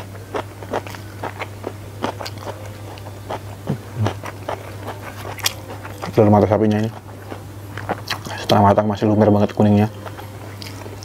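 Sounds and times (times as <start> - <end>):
chewing with mouth clicks: 0.0 - 8.6, 9.9 - 11.0
steady low hum: 0.0 - 11.0.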